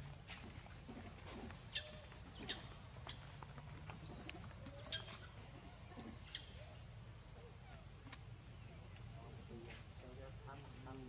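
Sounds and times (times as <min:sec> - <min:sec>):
monkey squeaking: 0:01.5 - 0:03.2, 0:04.7 - 0:05.3, 0:06.0 - 0:06.6.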